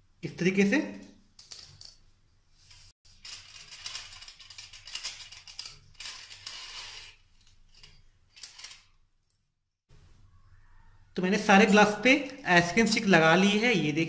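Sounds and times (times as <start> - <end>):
aluminium foil crinkling: 3.1 - 8.9.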